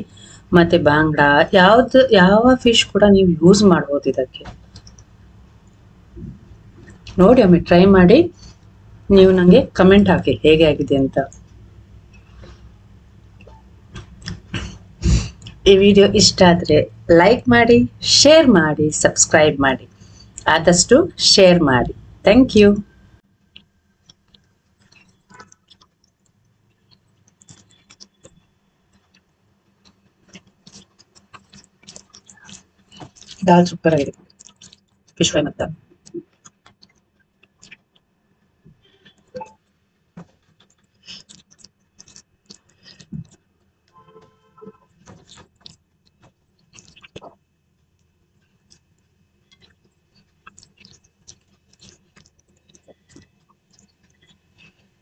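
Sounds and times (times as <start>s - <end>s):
fingers mixing food on a plate: 4.3s - 10.0s, 23.4s - 35.2s, 35.8s - 55.0s
mouth eating sounds: 11.3s - 15.6s, 26.8s - 35.2s, 40.4s - 43.4s, 44.0s - 47.4s, 49.5s - 54.7s.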